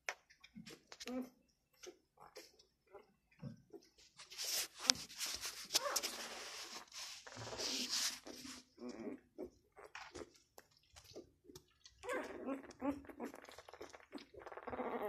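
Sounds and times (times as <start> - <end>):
rustling noise: 4.0 - 8.8
puppies whimpering and squeaking: 5.6 - 6.5, 12.0 - 13.3, 14.0 - 15.0.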